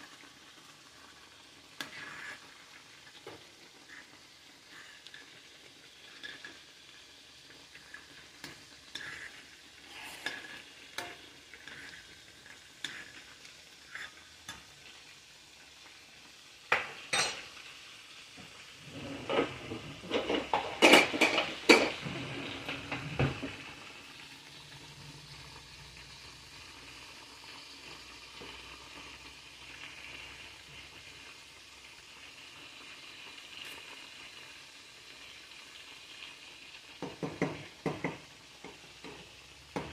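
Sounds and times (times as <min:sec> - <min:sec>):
hiss of food cooking: 0:00.0 - 0:39.9
spoon stirring rice in saucepan: 0:00.1 - 0:16.0, 0:18.4 - 0:24.2, 0:36.9 - 0:39.9.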